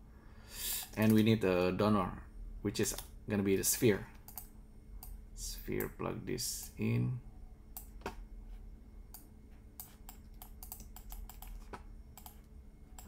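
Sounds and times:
keyboard typing: 9.8s - 13.0s.

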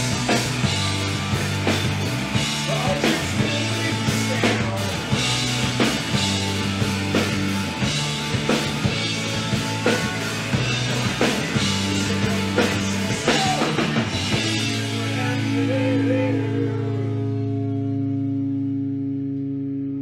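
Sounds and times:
drum kit beat: 0.0s - 15.8s
electric bass notes: 0.0s - 20.0s
electric guitar: 0.0s - 20.0s.

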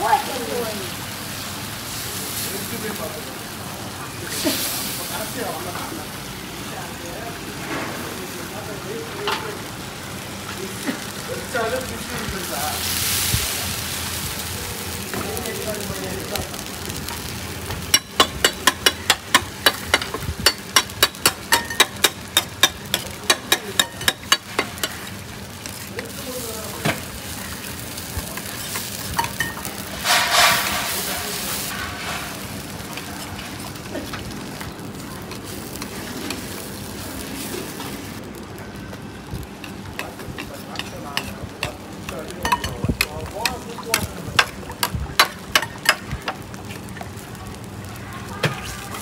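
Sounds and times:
eggs sizzling: 8.4s - 49.0s
metal ladle clacking on iron pan: 17.9s - 25.0s, 42.4s - 46.4s.

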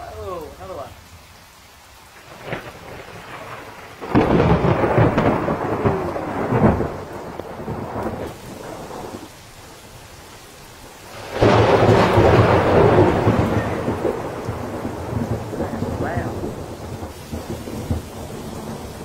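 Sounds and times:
thunder crack and rumble: 2.2s - 9.4s, 11.1s - 19.0s.

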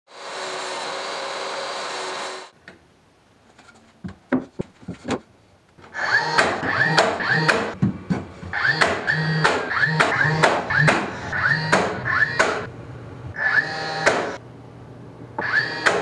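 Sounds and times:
cordless nailer firing: 6.0s - 7.8s, 8.6s - 12.7s, 13.5s - 14.4s.

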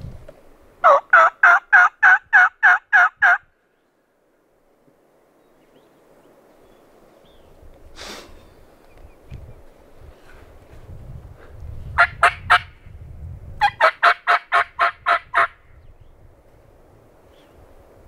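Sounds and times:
turkey call hen yelps: 0.8s - 3.4s, 13.6s - 15.6s.

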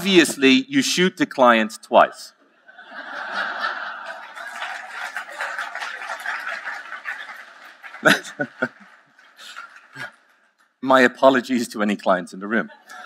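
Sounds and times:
audience laughing: 2.6s - 10.2s
loud chuckles close to microphone: 8.0s - 8.8s.

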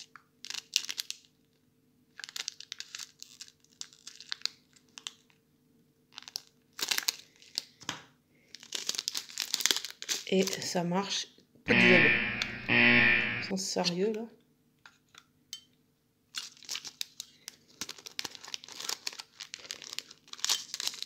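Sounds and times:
plastic bag crinkling: 0.4s - 1.3s, 2.2s - 5.3s, 6.1s - 7.7s, 8.5s - 10.6s, 16.4s - 21.0s.

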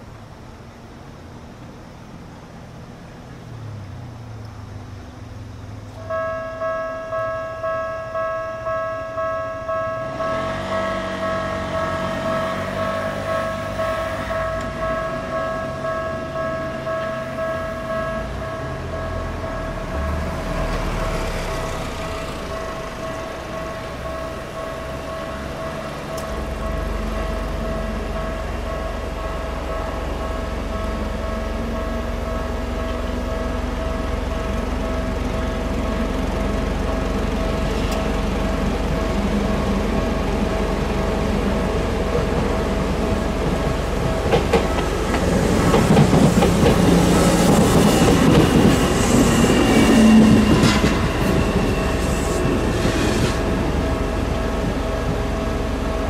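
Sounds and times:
train passing: 0.0s - 56.0s
level-crossing alarm ringing: 6.0s - 56.0s
train wheels clicking over rails: 10.1s - 56.0s.

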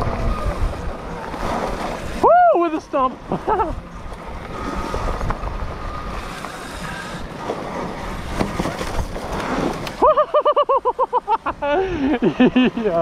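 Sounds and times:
wind rush over microphone: 0.0s - 2.5s, 3.5s - 10.0s
faint electric motor whine: 0.0s - 10.0s.

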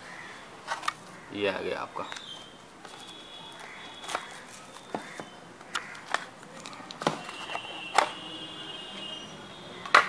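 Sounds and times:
plastic packaging crinkling: 2.2s - 5.2s.

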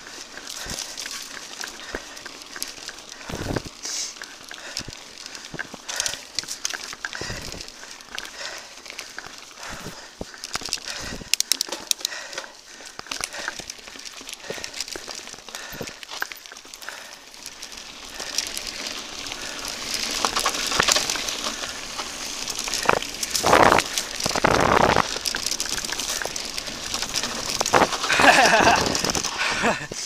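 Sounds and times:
bike tyres crackling over dirt: 0.0s - 30.0s
wind noise on microphone: 3.3s - 3.8s.

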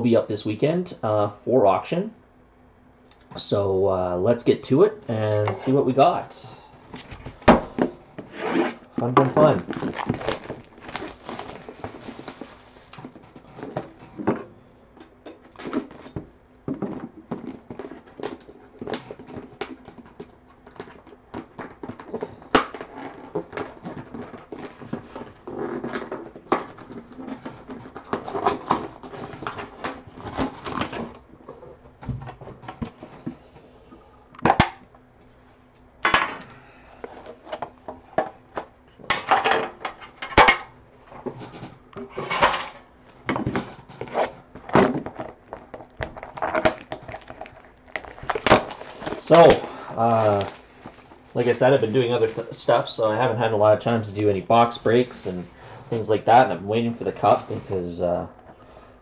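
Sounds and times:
box being handled and opened: 6.9s - 14.5s, 15.4s - 33.4s, 41.2s - 53.1s
plastic shrink wrap crinkling: 9.0s - 14.1s, 43.8s - 53.0s.

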